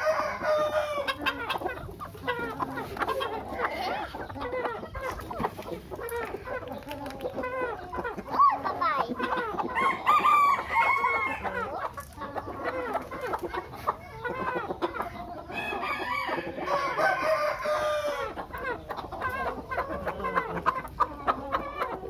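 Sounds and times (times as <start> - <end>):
rooster crowing: 0.0 - 1.2, 9.8 - 11.6, 15.5 - 18.3
chickens clucking: 0.0 - 22.0.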